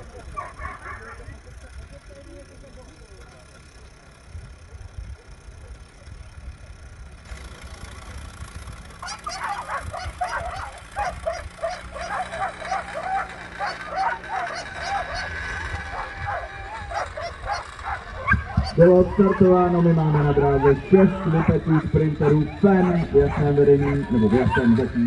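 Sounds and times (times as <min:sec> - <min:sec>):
dogs yelping and whining: 0:09.0 - 0:25.0.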